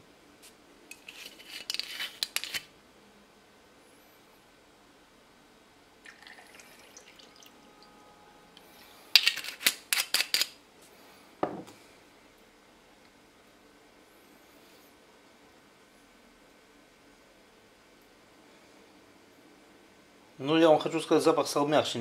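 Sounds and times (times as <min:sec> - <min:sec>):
liquid trickling into glass: 0:06.0 - 0:07.9
bottle knocking on table: 0:11.4 - 0:11.7.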